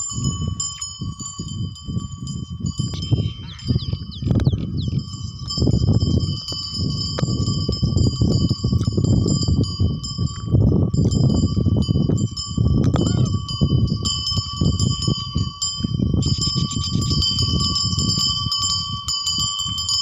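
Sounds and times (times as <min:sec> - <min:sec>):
small bells jingling: 0:00.0 - 0:20.0
wind rumbling on microphone: 0:00.0 - 0:20.0.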